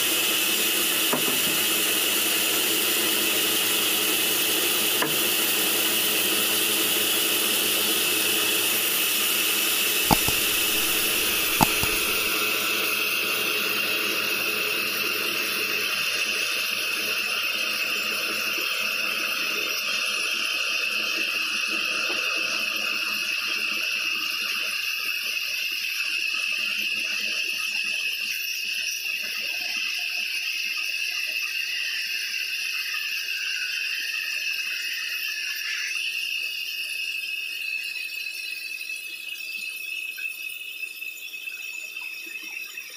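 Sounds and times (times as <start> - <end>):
sharp knocks: 10.1 - 12.3.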